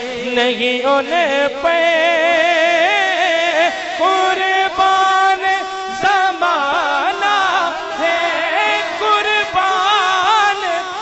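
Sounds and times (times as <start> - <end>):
man singing into microphone: 0.0 - 11.0.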